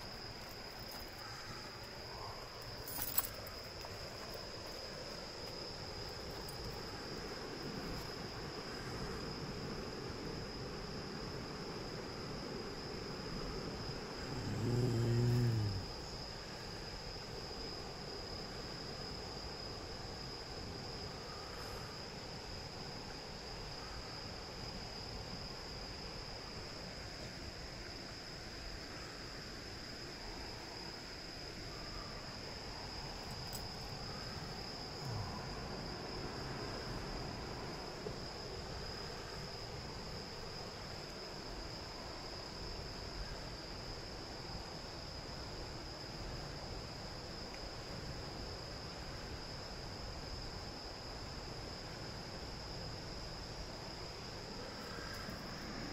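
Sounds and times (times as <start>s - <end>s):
faint hiss: 0.0s - 55.9s
insects singing high note: 14.0s - 16.6s.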